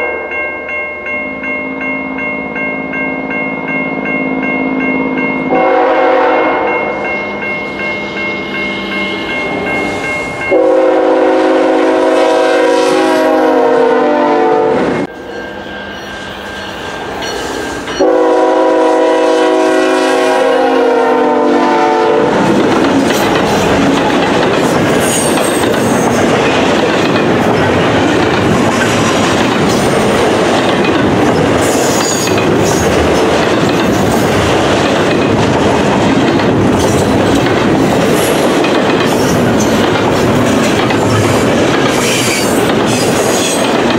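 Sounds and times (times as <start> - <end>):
locomotive horn blasts: 5.4 - 7.1, 10.5 - 15.1, 18.0 - 22.4
train cars rolling past: 21.7 - 43.9.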